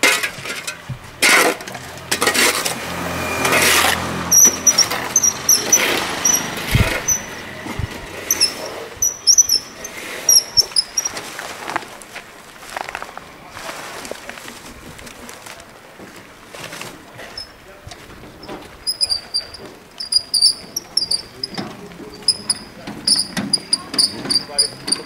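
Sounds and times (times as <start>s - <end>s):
wheelbarrow wheel squeaking: 0.0s - 25.0s.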